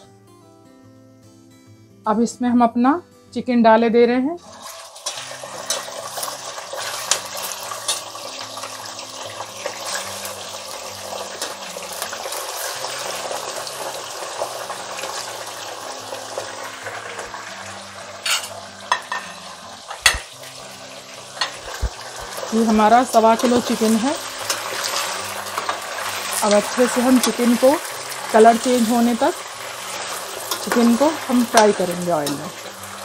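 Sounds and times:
chicken sizzling in hot oil: 4.4s - 33.0s
spoon knocking pan: 18.2s - 20.4s, 21.4s - 27.9s, 29.8s - 32.7s.

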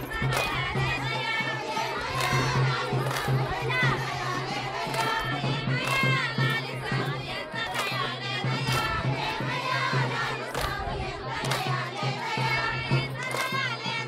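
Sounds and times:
crowd singing and shouting: 0.0s - 14.0s.

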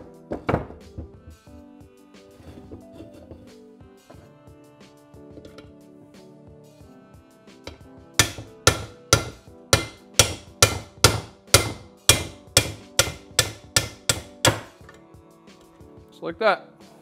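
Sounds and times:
hammer striking steel punch: 7.7s - 14.8s.

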